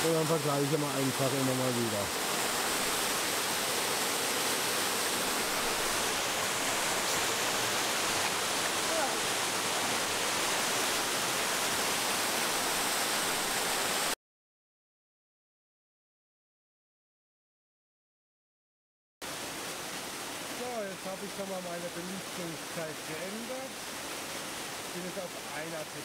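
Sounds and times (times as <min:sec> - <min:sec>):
waterfall rushing: 0:00.0 - 0:14.2, 0:19.3 - 0:26.0.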